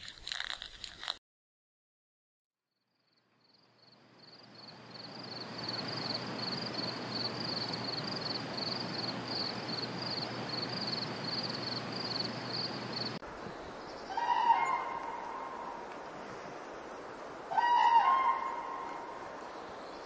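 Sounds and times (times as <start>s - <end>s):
background hiss: 3.5s - 20.0s
katydid chirping: 3.8s - 14.8s.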